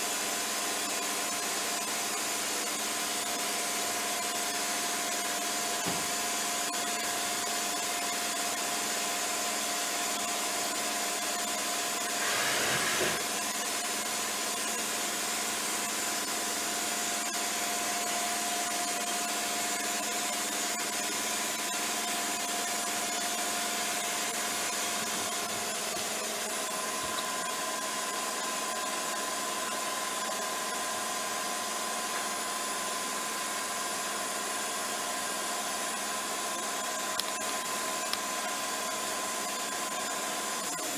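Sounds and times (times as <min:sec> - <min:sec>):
machining centre hissing and whining: 0:00.1 - 0:40.9.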